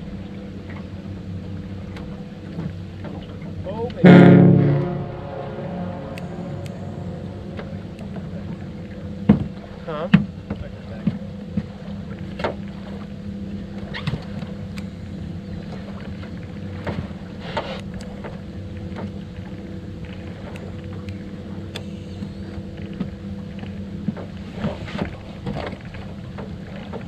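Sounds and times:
boat motor humming: 0.0 - 27.0.

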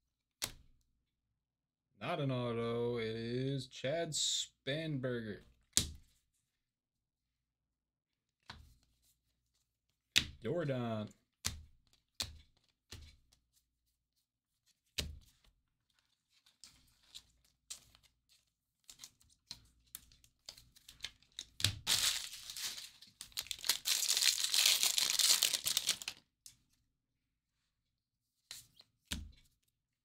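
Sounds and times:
foil wrapper tearing and crinkling: 21.8 - 26.2.

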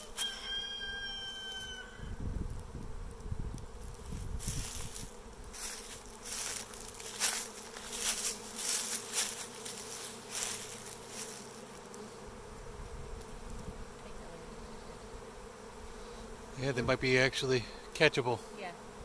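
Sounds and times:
bees humming in flight: 0.0 - 19.0
hissing rustles: 2.4 - 12.3.

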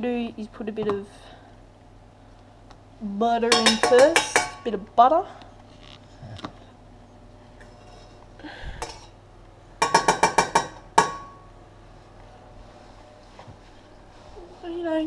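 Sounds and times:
knife clinking on metal pan: 3.5 - 4.7.

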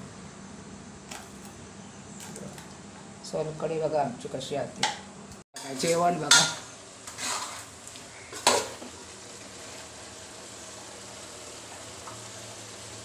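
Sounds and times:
metal spoon scraping a pot: 5.6 - 7.7.

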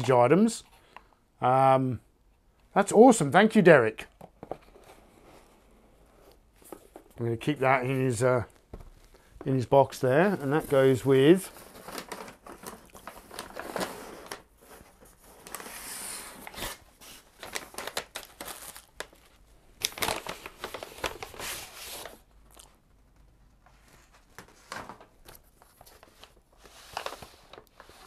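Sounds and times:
cardboard rustling and scraping: 4.3 - 7.2, 10.4 - 19.2, 20.0 - 22.2, 23.6 - 28.0.

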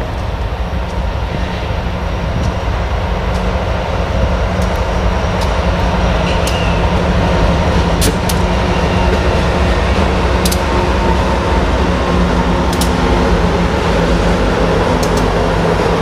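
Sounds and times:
diesel locomotives rumbling: 0.0 - 16.0
sharp clicks: 15.0 - 15.4.

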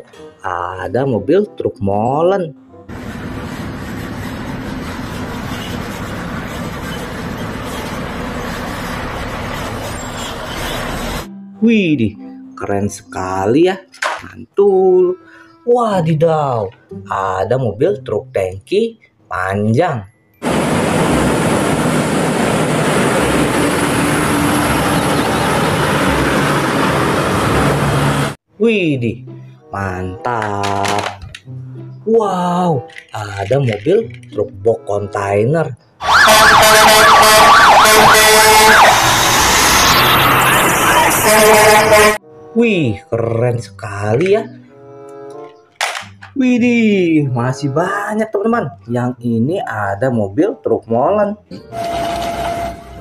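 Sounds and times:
diesel engine running: 2.9 - 11.3, 20.4 - 28.4
tyre and road noise: 2.9 - 11.3, 20.4 - 28.4, 30.3 - 35.2, 36.0 - 42.2.

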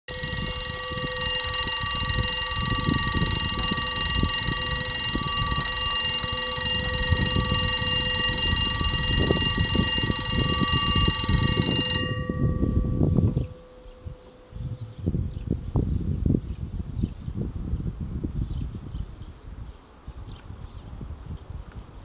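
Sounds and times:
high ringing tones: 0.1 - 16.0
wind buffeting microphone: 0.1 - 22.0.

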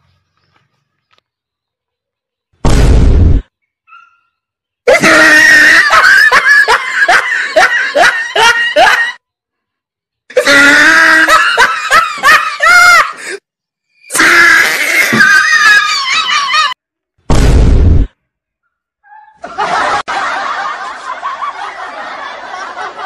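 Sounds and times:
high-pitched laughter: 4.9 - 9.2, 10.3 - 13.2, 14.4 - 16.8, 19.4 - 23.0.

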